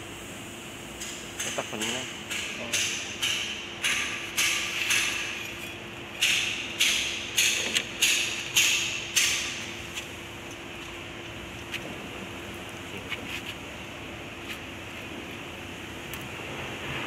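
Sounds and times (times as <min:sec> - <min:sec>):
hammer striking metal: 0:01.0 - 0:05.6, 0:06.2 - 0:09.5.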